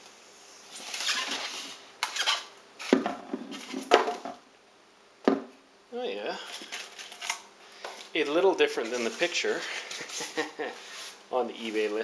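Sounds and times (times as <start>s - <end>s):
styrofoam rubbing and scraping: 0.7s - 3.9s, 8.2s - 12.0s.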